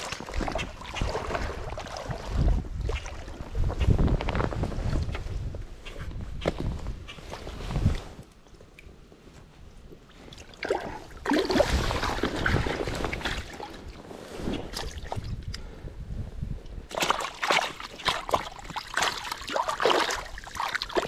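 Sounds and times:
creek water splashing: 0.0s - 3.4s, 10.4s - 13.9s, 16.9s - 21.0s.

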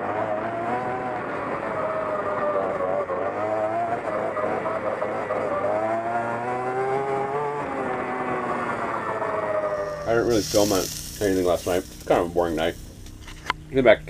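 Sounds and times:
vehicle engines rising and falling: 0.0s - 14.0s
steady low hum: 9.7s - 14.0s.

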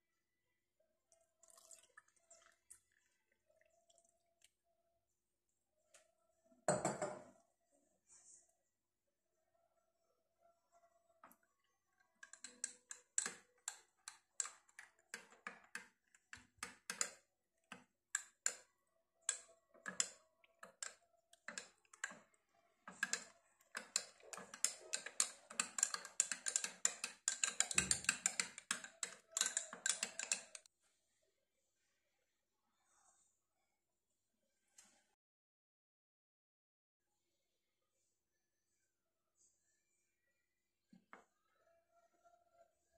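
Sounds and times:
spoon clinking against glass: 23.0s - 30.6s.

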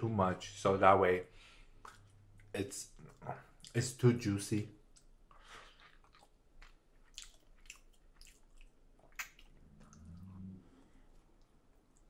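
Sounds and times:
mouth chewing with wet smacks: 1.7s - 3.8s, 4.8s - 10.3s.

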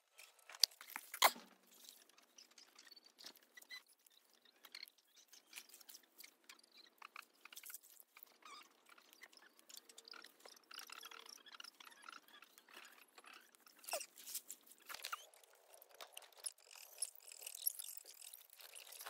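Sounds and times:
vines and stems rustling: 12.2s - 19.0s.

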